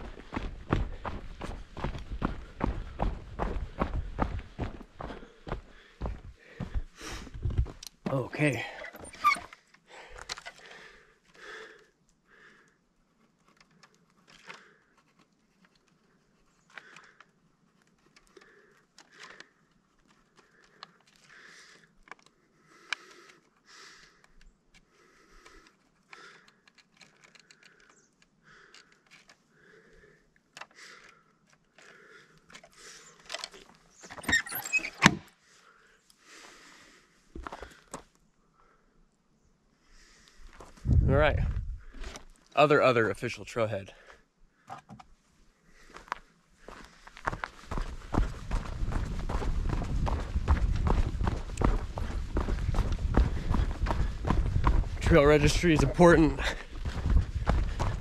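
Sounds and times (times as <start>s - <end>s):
hands rustling gear: 0.0s - 10.7s, 13.2s - 29.8s.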